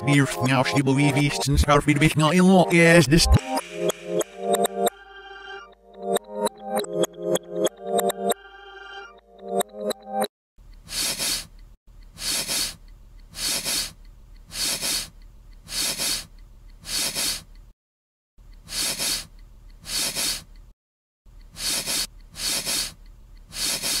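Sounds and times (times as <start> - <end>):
breathy hissing bursts: 10.9 - 11.5, 12.2 - 15.1, 15.7 - 17.5, 18.6 - 20.5, 21.5 - 24.0.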